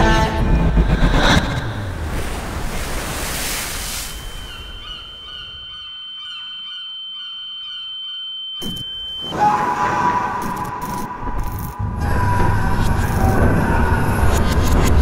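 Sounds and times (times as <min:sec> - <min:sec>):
surf washing over rocks: 0:01.9 - 0:04.8
high-pitched ringing tone: 0:03.8 - 0:11.8
faint bird calls: 0:04.2 - 0:08.0.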